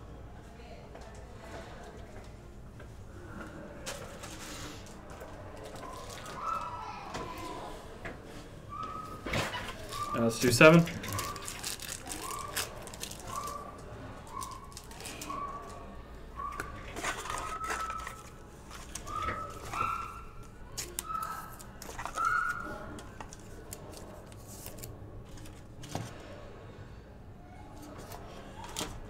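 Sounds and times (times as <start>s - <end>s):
foil wrappers crinkling: 4.0s - 7.0s, 9.6s - 15.8s, 16.6s - 25.9s
cards being handled: 16.6s - 26.2s.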